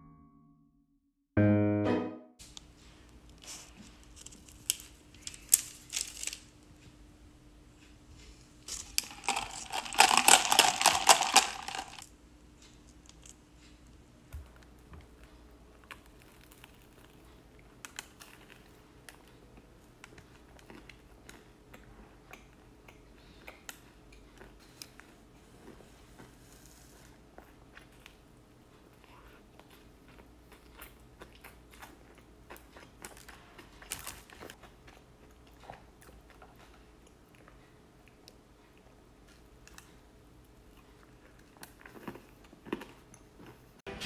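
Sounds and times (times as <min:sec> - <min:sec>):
paper crinkling: 0:03.3 - 0:06.6, 0:08.6 - 0:12.0.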